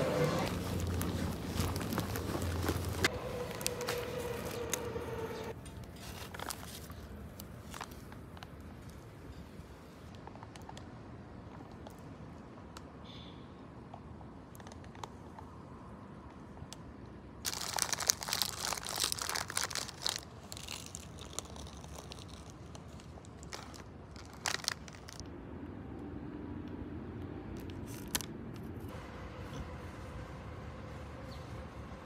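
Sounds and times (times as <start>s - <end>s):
paper crinkling: 0.0s - 8.6s, 17.5s - 25.2s
crunchy snack being eaten: 17.5s - 25.2s.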